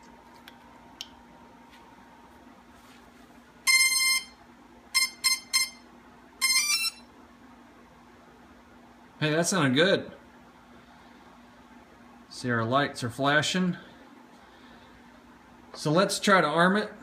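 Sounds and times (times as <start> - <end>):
drone motor power-up beeps: 6.4 - 7.0.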